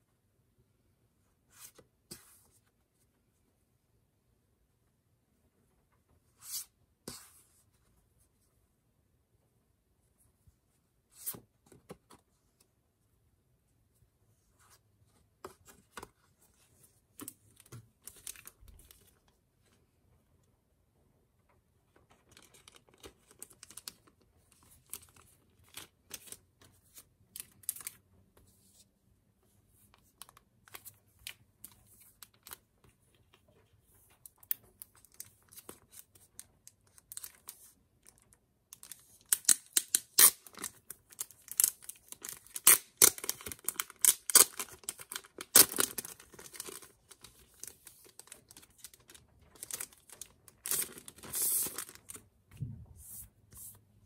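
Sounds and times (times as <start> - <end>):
cellophane crinkling: 40.2 - 52.3.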